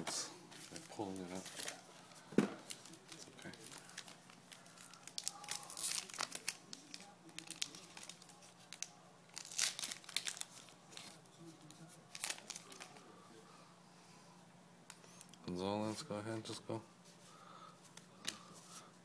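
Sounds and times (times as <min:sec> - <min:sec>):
wrapper tearing and crinkling: 0:02.7 - 0:11.2, 0:12.1 - 0:13.0.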